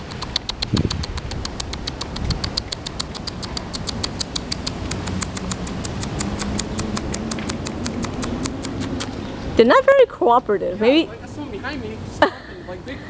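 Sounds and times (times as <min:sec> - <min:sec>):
squirrel clicking chatter: 0:00.0 - 0:09.2.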